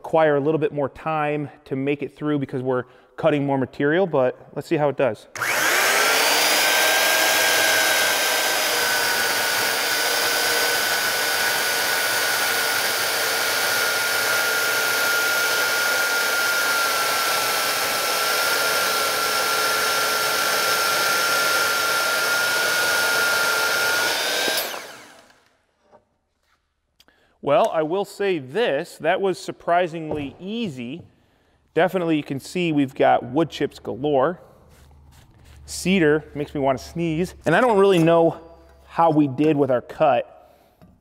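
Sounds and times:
electric chainsaw cutting wood: 5.4 - 25.6.

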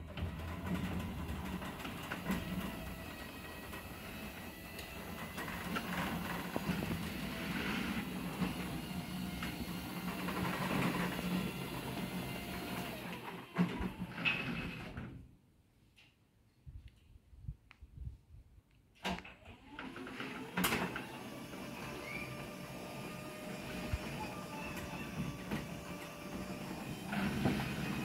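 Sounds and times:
garage door opener humming and rattling: 0.0 - 15.3, 19.0 - 28.0.

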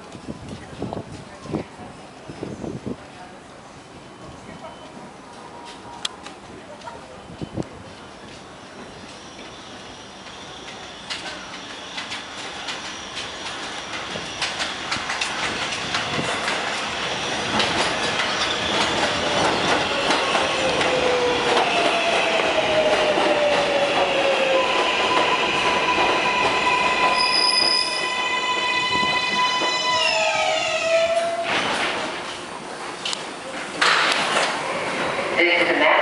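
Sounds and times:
subway train braking: 2.0 - 36.0
wheel squeal on rails: 9.0 - 15.2, 24.5 - 31.8.

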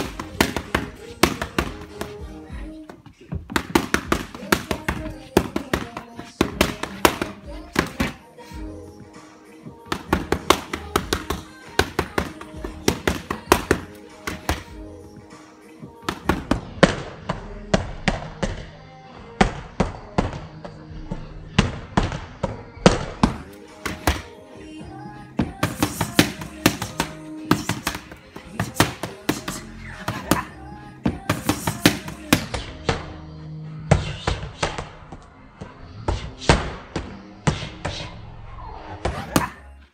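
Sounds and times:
boxing gloves smacking mitts: 0.0 - 8.3, 9.8 - 14.8, 16.0 - 18.7, 21.6 - 33.2, 33.9 - 35.3
background music: 0.0 - 39.9.

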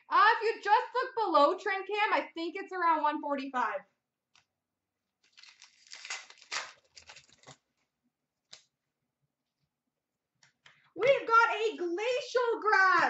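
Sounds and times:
trading cards rustling: 5.2 - 7.8.

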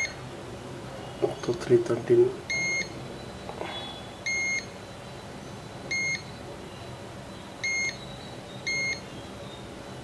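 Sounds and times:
multimeter high-pitched beeps: 0.0 - 0.2, 2.5 - 3.5, 4.2 - 4.8, 5.9 - 6.9, 7.6 - 9.1.

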